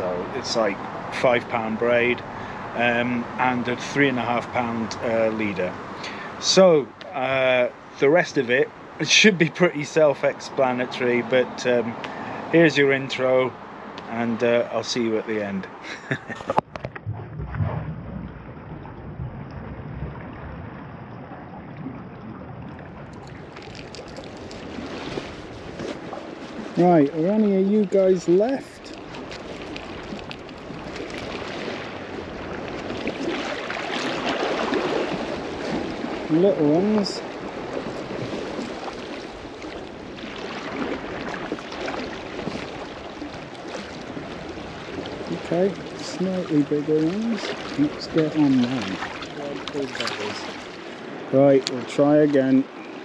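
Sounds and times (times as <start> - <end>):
wind on microphone: 16.1 - 27.4
sea water washing against rocks: 16.1 - 53.0
small splashes: 21.3 - 27.1, 28.4 - 51.9.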